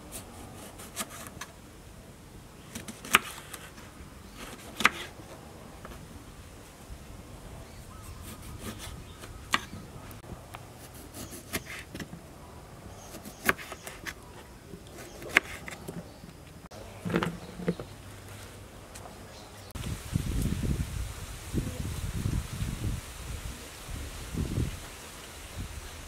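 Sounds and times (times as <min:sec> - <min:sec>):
knife cutting on wooden board: 0:04.4 - 0:05.2, 0:10.8 - 0:12.1, 0:13.0 - 0:14.2, 0:15.0 - 0:15.9.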